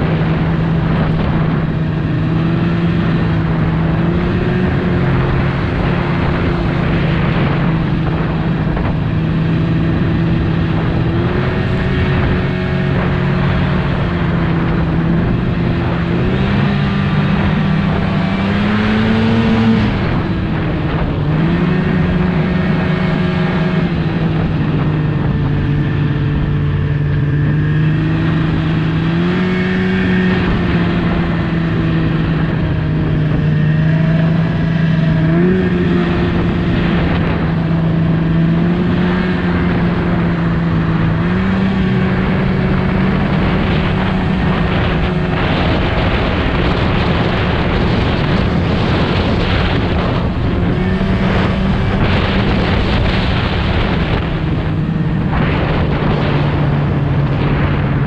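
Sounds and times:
snowmobile engine running: 0:00.0 - 0:58.0.

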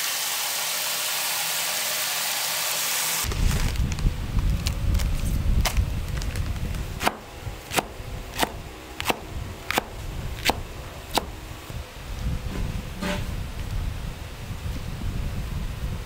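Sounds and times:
knife chopping on cutting board: 0:07.0 - 0:11.4.

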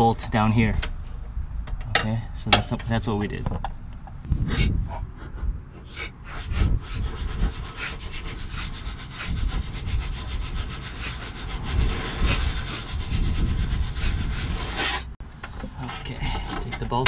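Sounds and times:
metal bolt scraping: 0:14.5 - 0:17.0.

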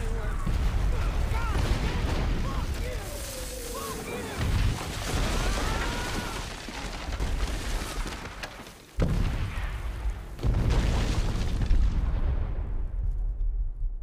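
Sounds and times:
rumble of shell explosions: 0:00.0 - 0:03.2, 0:09.0 - 0:14.0.

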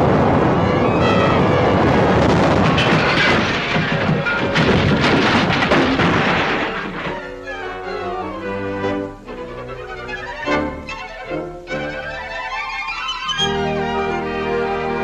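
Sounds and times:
crashing and rumbling noise: 0:00.0 - 0:09.8
fast orchestral music: 0:00.3 - 0:03.1, 0:06.7 - 0:15.0
sustained string notes: 0:07.0 - 0:15.0.

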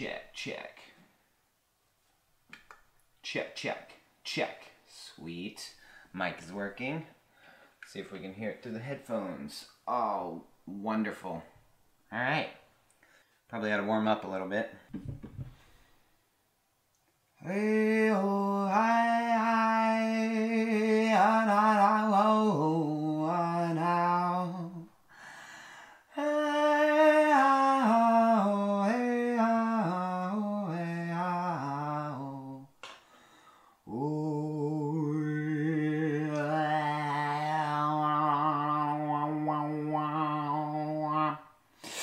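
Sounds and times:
man breathing: 0:05.7 - 0:06.2, 0:07.2 - 0:07.8, 0:15.4 - 0:16.2, 0:25.0 - 0:26.2, 0:33.0 - 0:33.9, 0:41.7 - 0:42.0
man singing vocal warm-up: 0:17.4 - 0:25.0, 0:26.0 - 0:32.8, 0:33.8 - 0:42.0.

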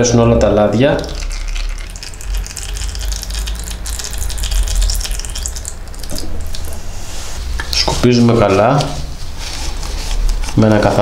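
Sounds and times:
oil pouring into container: 0:01.0 - 0:06.9.

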